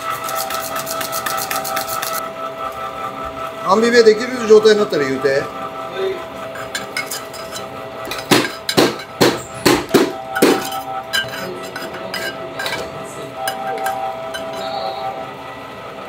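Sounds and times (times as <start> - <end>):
metal utensils clinking on steel: 6.5 - 9.4, 10.4 - 14.7
faint hum: 9.4 - 16.0.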